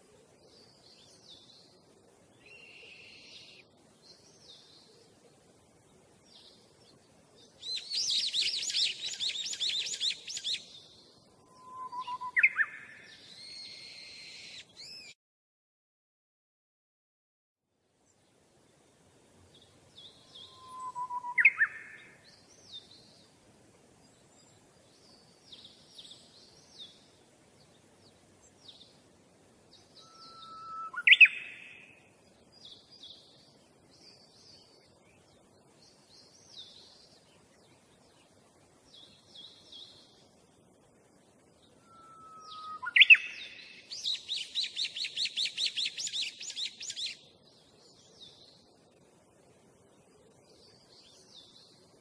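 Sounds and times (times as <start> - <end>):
small birds chirping: 0.0 - 15.2, 18.0 - 52.0
loud bird whistle call: 11.5 - 12.7, 13.4 - 15.1, 20.4 - 22.0, 30.0 - 31.7, 41.8 - 43.6.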